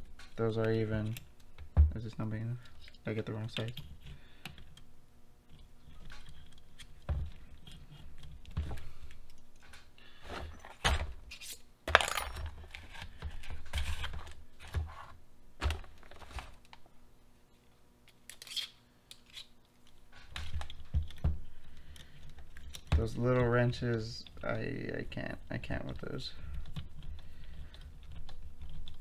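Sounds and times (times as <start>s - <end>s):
metal tools clinking in case: 11.9s - 12.6s.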